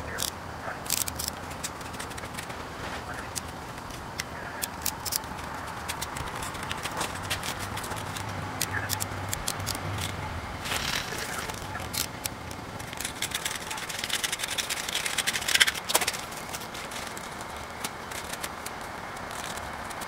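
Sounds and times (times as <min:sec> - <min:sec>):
tool scraping and chipping ice: 0:04.6 - 0:20.0.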